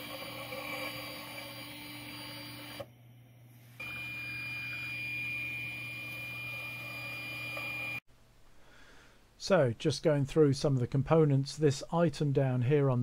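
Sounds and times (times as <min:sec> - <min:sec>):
stepper motor whine: 0:00.0 - 0:03.0, 0:03.8 - 0:08.0.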